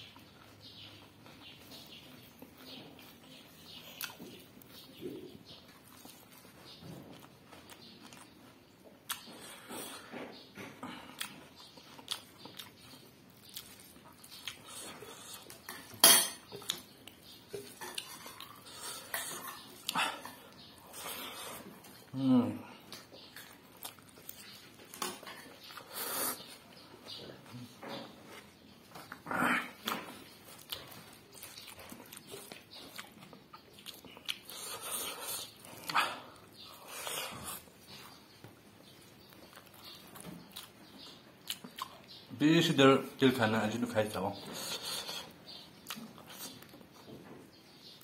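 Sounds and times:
person chewing close to microphone: 0:00.0 - 0:15.9, 0:16.5 - 0:42.3, 0:44.4 - 0:48.0
cutlery clinking on dishes: 0:15.6 - 0:16.6.

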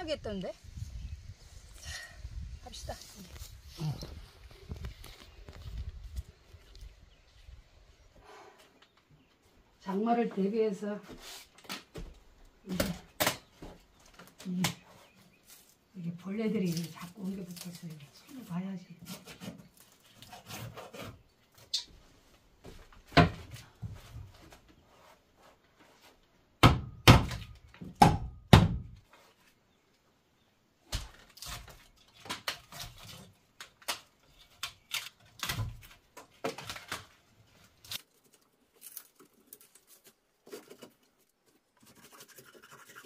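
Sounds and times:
hand tool scraping wood: 0:19.0 - 0:21.3.

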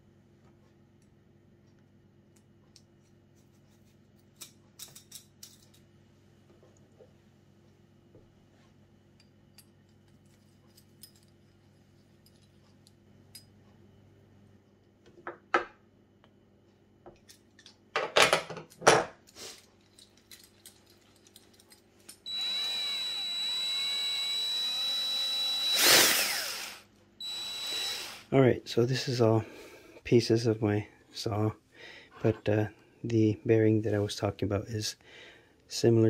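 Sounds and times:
metal parts clanking: 0:17.3 - 0:22.2
power drill whining: 0:22.2 - 0:28.3.

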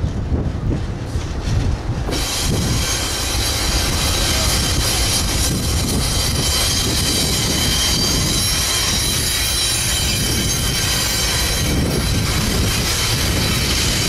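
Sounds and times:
diesel locomotives rumbling: 0:00.0 - 0:14.0
wind on microphone: 0:00.0 - 0:14.0
wheels squealing on rail: 0:01.1 - 0:14.0.

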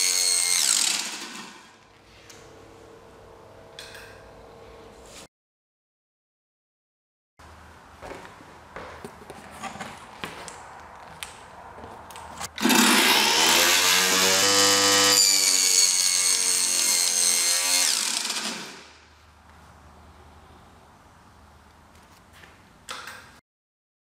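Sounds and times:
table saw blade whine: 0:00.0 - 0:01.8, 0:12.6 - 0:18.9.

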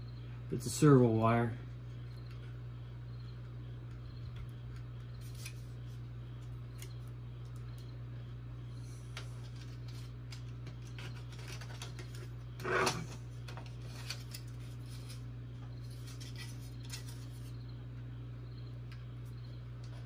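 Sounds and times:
plastic scraping rustle: 0:09.2 - 0:17.6.

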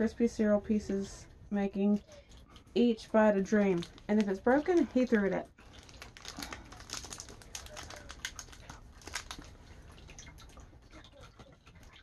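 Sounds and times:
plastic wrapper crinkling: 0:03.4 - 0:10.2.

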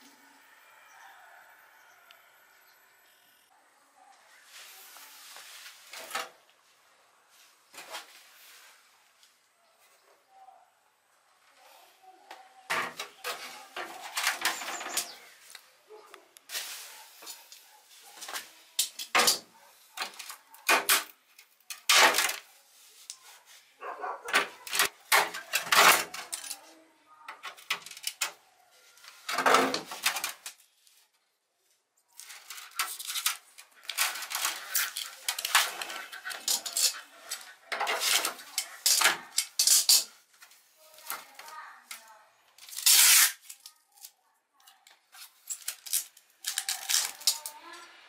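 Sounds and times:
metal pieces clattering: 0:32.4 - 0:40.1.

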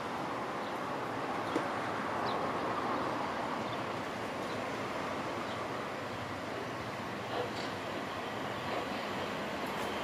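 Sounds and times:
train wheels rumbling on rails: 0:03.6 - 0:10.0.

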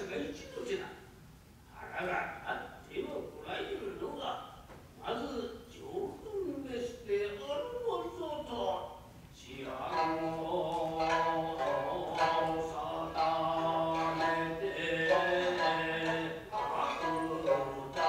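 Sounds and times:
person chanting sung narration: 0:09.4 - 0:18.0
plucked shamisen notes: 0:09.6 - 0:18.0.

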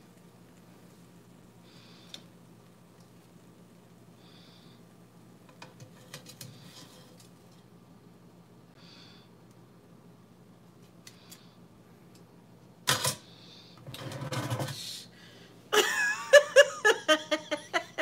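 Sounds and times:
woman laughing: 0:15.7 - 0:18.0.

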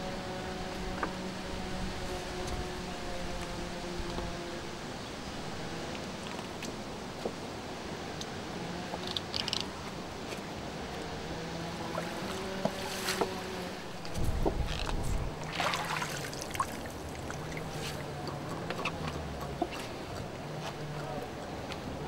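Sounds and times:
low steady hum: 0:00.0 - 0:22.0
water splashing and dripping: 0:15.4 - 0:20.3.

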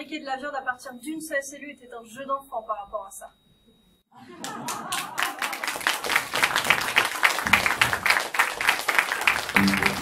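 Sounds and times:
audience applauding: 0:04.4 - 0:10.0
music: 0:09.6 - 0:10.0.

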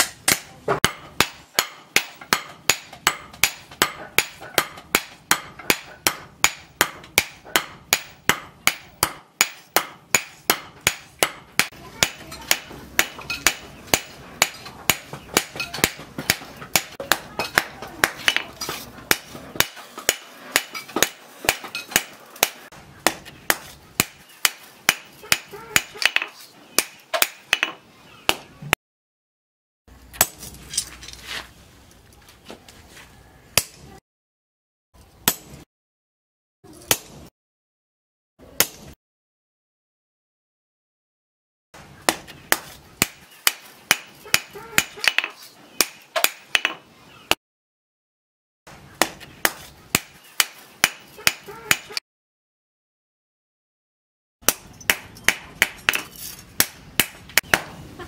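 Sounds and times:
hammer striking steel on anvil: 0:00.0 - 0:28.4, 0:30.2 - 0:30.5, 0:35.2 - 0:35.6, 0:38.6 - 0:39.0, 0:54.4 - 0:57.7.

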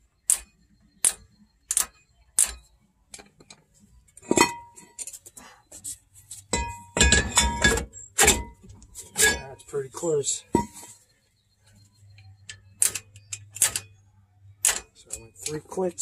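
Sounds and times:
metal rattling and scraping: 0:04.2 - 0:11.0
metal clinks: 0:06.5 - 0:09.7, 0:10.5 - 0:11.0.

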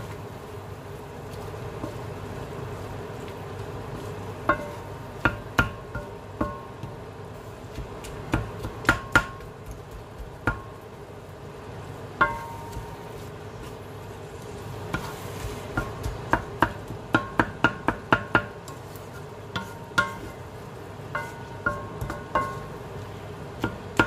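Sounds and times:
wooden spatula tapping a wok: 0:01.3 - 0:02.2, 0:03.2 - 0:11.0, 0:12.2 - 0:13.8, 0:14.8 - 0:24.0.

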